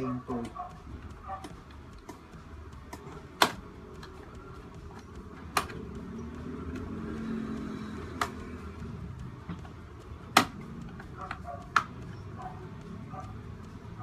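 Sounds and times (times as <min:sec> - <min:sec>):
sharp plastic clicks: 0:04.9 - 0:06.9.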